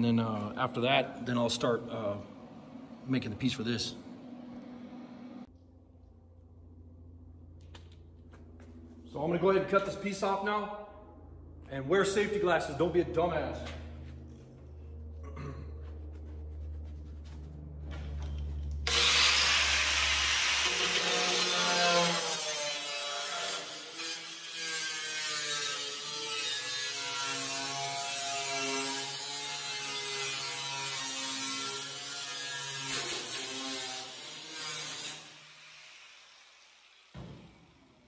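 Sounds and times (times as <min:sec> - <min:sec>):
angle grinder cutting sheet metal: 0:18.0 - 0:37.8.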